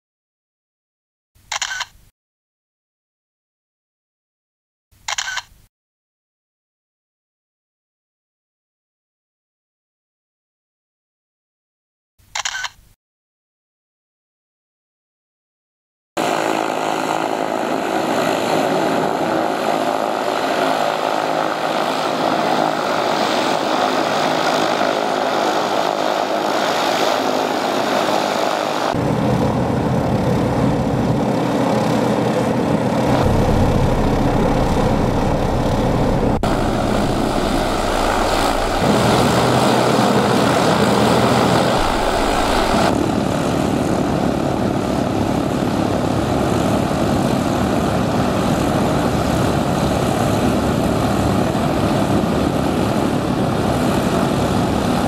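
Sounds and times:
propeller aircraft engines idling: 16.7 - 43.0
deep low rumble: 33.1 - 39.2, 41.8 - 42.9.

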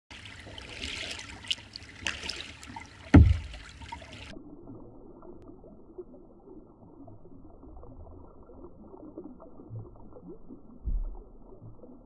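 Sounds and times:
faint lapping of water: 0.1 - 12.0
water trickling and splashing: 0.1 - 12.0
heavy thump: 3.2 - 3.6.

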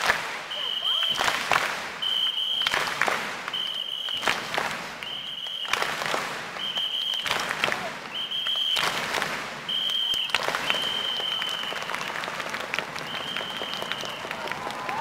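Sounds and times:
crowd clapping: 0.0 - 15.0
high-pitched whistle blasts: 0.5 - 1.2, 2.0 - 2.7, 3.5 - 4.3, 5.0 - 5.8, 6.6 - 7.3, 8.1 - 8.9, 9.7 - 11.9.

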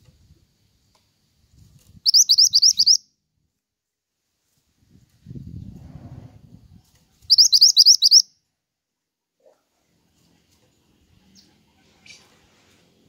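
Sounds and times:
bird singing high notes: 2.1 - 3.0, 7.3 - 8.3
low rustle: 4.2 - 7.3.

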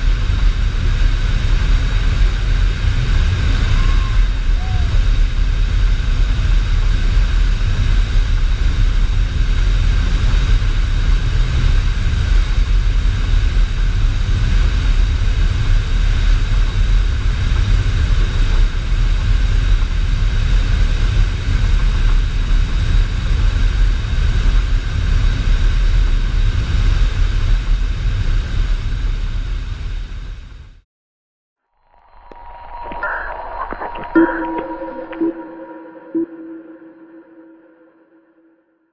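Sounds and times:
rushing air: 0.0 - 11.2, 31.8 - 37.7
jet engine low rumble: 0.0 - 30.8, 31.8 - 37.8
faint steady whines: 31.7 - 38.5.

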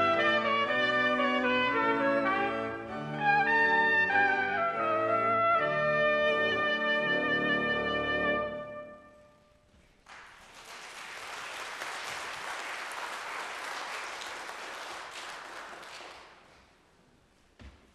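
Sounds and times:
congregation applauding: 10.0 - 16.8.

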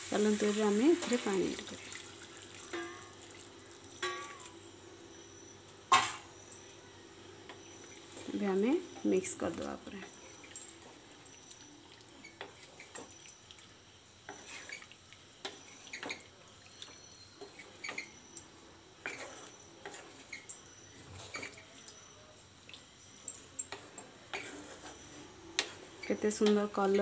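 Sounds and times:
spatula scraping a pan: 14.3 - 16.2, 19.0 - 20.5, 23.7 - 27.0.

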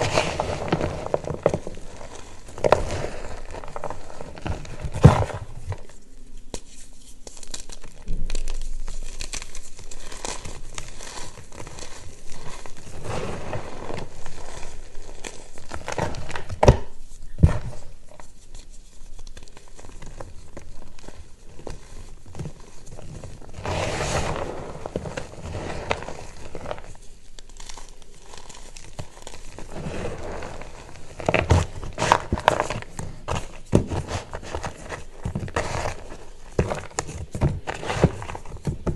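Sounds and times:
chalk crunching and crumbling: 0.0 - 38.9.

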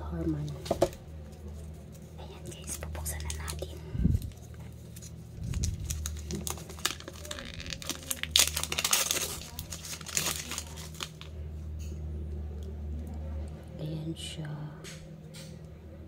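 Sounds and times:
plastic film crinkling: 0.8 - 11.4.

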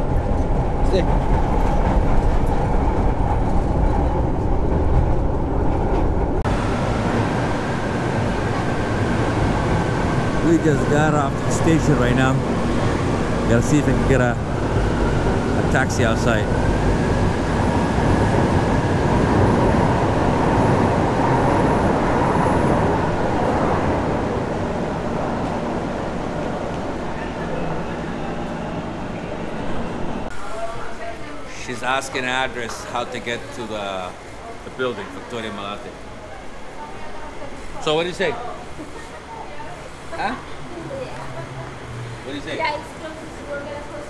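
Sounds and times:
train carriage rumble: 0.0 - 44.0.

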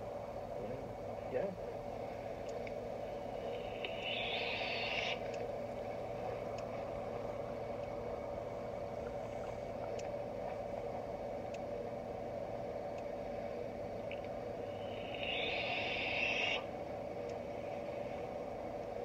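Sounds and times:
background hum: 0.0 - 19.0
faint clicks: 3.5 - 5.5, 9.0 - 10.6.

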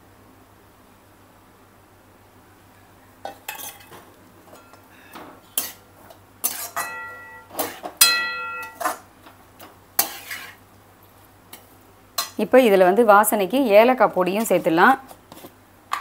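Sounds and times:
metal spoon clanking against wok: 6.4 - 9.0, 11.6 - 12.4.

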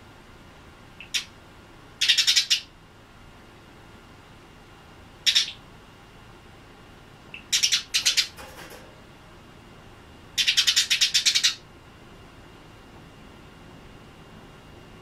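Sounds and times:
sparrow chirping: 1.0 - 1.3, 2.0 - 2.7, 5.2 - 5.6, 7.4 - 8.4, 10.4 - 11.6.

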